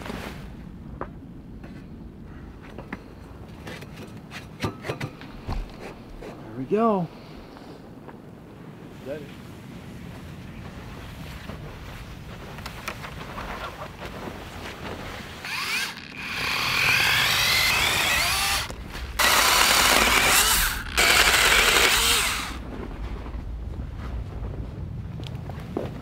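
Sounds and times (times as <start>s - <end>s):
cordless saw cutting branches: 15.4s - 22.6s.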